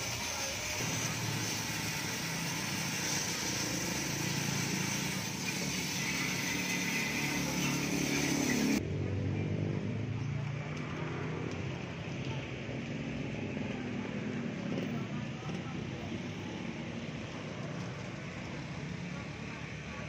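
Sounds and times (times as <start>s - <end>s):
pressure washer spray hissing: 0.0s - 8.8s.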